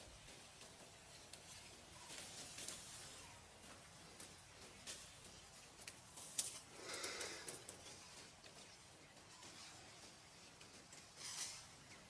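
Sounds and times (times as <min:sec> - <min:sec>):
faint hiss: 0:01.1 - 0:08.3
soft ticks: 0:03.6 - 0:11.2.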